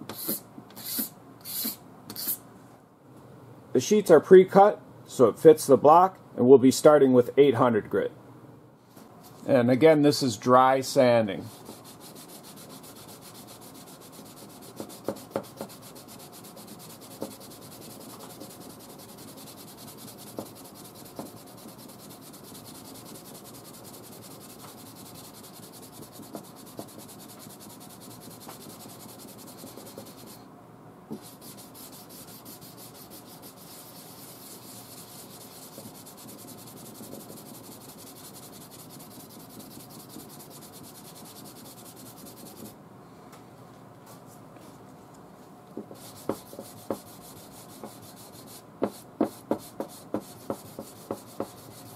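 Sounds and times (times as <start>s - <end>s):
sandpaper rubbing on paint: 11.5s - 30.4s, 31.2s - 42.7s, 46.0s - 51.9s.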